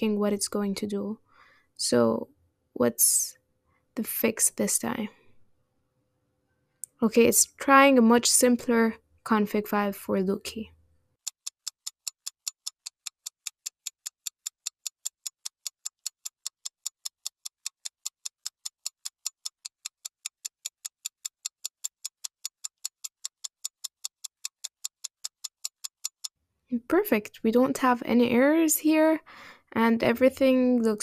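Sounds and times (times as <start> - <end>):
rapid clock-like ticking: 11.3 - 26.3.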